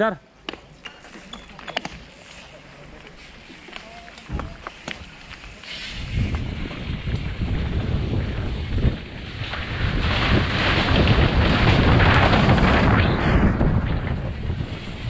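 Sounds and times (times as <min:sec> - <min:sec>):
bike tyre rumble: 0:00.6 - 0:15.0
wind rushing over microphone: 0:05.8 - 0:15.0.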